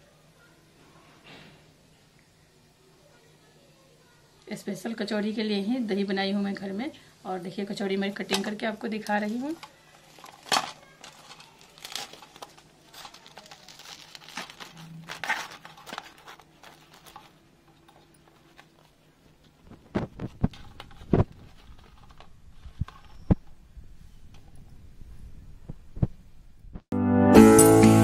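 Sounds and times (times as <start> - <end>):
fried crust crackling: 9.0 - 19.0.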